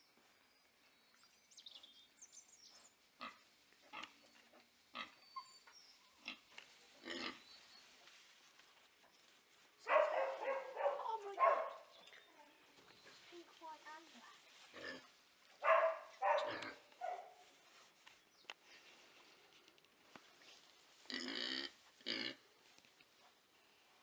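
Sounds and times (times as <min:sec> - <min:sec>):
piglets grunting: 0:06.2 - 0:07.4.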